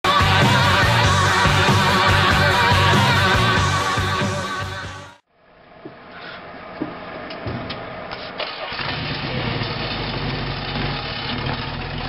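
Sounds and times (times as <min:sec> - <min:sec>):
engine cranking with sharp clicks: 0:08.1 - 0:12.0
engine idling: 0:08.4 - 0:12.0.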